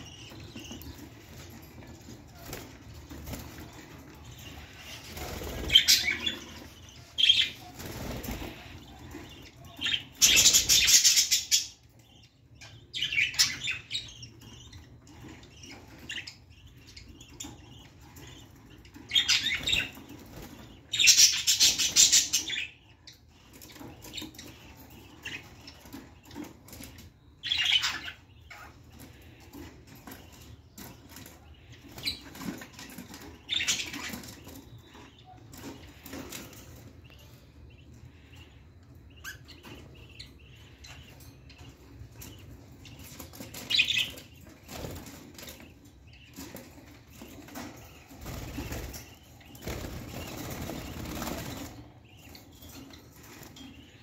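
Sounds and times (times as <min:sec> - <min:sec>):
birds fluttering wings: 0:00.0 - 0:09.4, 0:43.1 - 0:53.7
bird chirps: 0:00.0 - 0:54.0.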